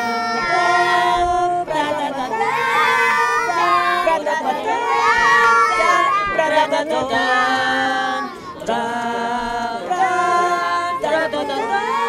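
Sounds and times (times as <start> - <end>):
voices singing held notes: 0.0 - 12.0.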